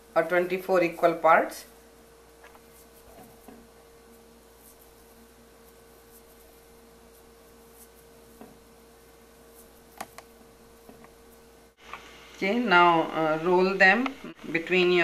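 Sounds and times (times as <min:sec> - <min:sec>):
steady hum: 0:00.0 - 0:15.0
hands rustling soft dough: 0:00.6 - 0:11.8.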